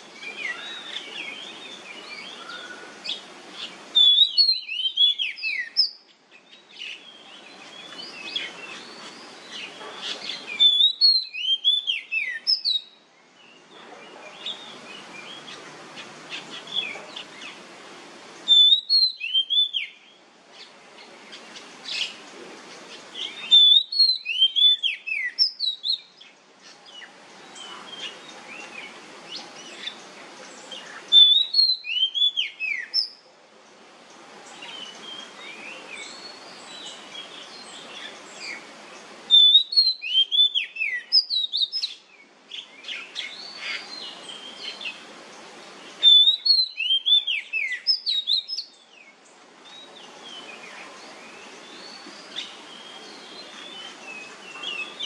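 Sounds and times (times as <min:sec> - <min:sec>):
soft bird twittering: 0:00.0 - 0:17.6, 0:18.4 - 0:33.3, 0:34.4 - 0:55.0
background hiss: 0:00.0 - 0:55.0
bird whistling song: 0:00.2 - 0:13.6, 0:18.4 - 0:20.2, 0:23.2 - 0:26.3, 0:30.9 - 0:33.2, 0:39.3 - 0:45.0, 0:46.0 - 0:48.8.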